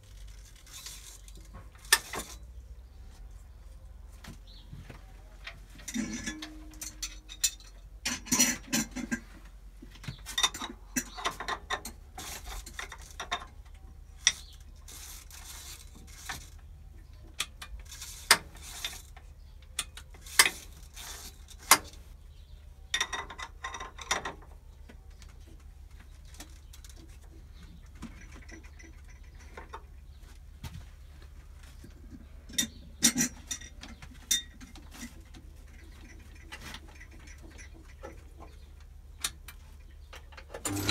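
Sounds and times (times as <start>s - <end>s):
metallic clicks and clinks: 5.8s - 9.2s.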